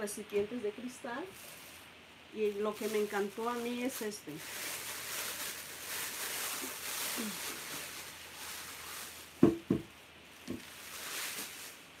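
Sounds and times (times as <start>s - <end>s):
paper rustling: 2.7s - 9.5s, 10.4s - 11.9s.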